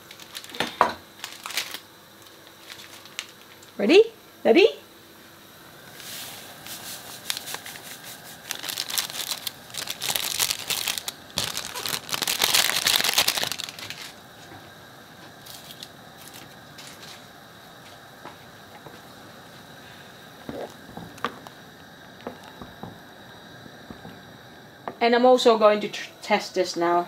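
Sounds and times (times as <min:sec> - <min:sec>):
seasoning sachet crinkling: 0:00.0 - 0:03.8, 0:06.6 - 0:14.2, 0:15.4 - 0:17.2.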